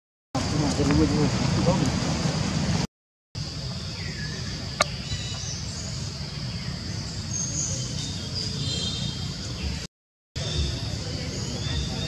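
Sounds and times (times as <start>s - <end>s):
high insect drone: 3.4s - 9.8s.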